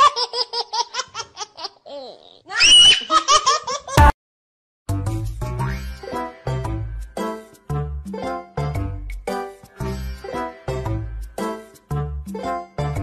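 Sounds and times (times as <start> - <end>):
shrill shriek: 2.5 - 3.1
music: 4.9 - 13.0.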